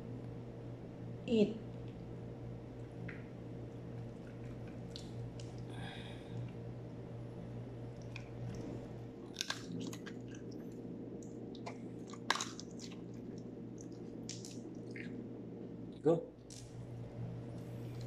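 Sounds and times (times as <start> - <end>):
dog chewing food: 3.7 - 5.7, 7.9 - 15.2.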